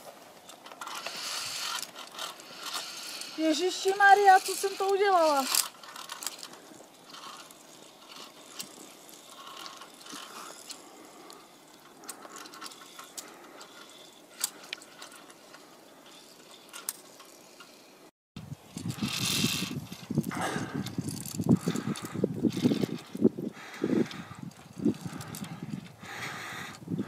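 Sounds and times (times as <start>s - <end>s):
rustling and clinking: 0.0s - 17.9s
carabiners clicking on steel cable: 0.4s - 18.1s, 18.7s - 26.9s.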